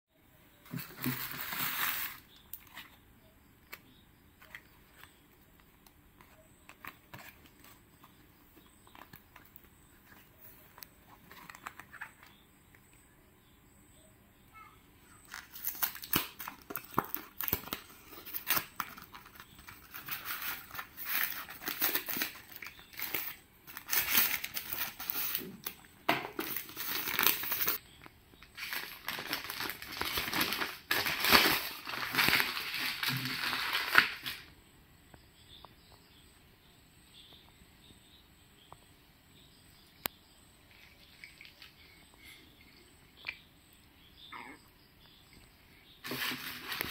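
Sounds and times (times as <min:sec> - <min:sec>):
foil and paper crinkling: 0:00.7 - 0:02.9, 0:15.3 - 0:27.8, 0:28.4 - 0:34.5, 0:46.0 - 0:46.9
plastic bag rustling: 0:00.7 - 0:03.0, 0:15.3 - 0:27.8, 0:28.5 - 0:34.5, 0:46.0 - 0:46.9.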